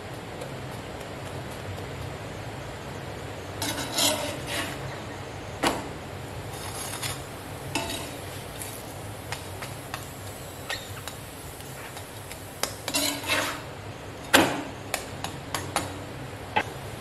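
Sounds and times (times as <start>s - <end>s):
spatula scraping on iron pan: 3.6s - 5.0s, 6.5s - 8.9s, 12.6s - 13.7s.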